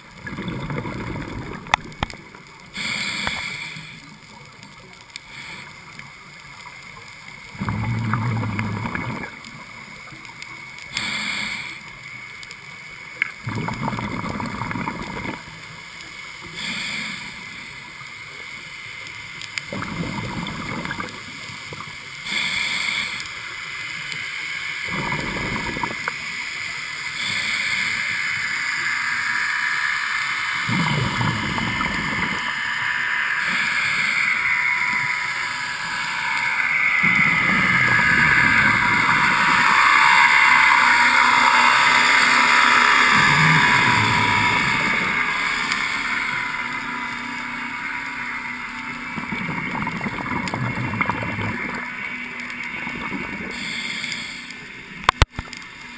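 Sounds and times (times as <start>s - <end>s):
bubbling exhalations: 0.2s - 2.1s, 7.5s - 9.3s, 13.4s - 15.4s, 19.7s - 21.2s, 24.9s - 26.1s, 30.6s - 32.6s
regulator hissing inhalations: 2.8s - 4.1s, 10.9s - 11.9s, 16.4s - 17.8s, 22.2s - 23.6s, 27.0s - 46.4s, 53.5s - 54.7s.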